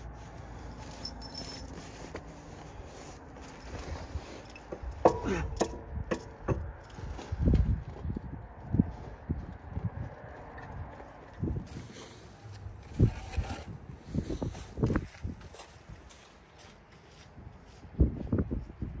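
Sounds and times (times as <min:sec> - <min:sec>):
metal parts clinking and knocking: 0:00.7 - 0:02.2, 0:03.4 - 0:07.2.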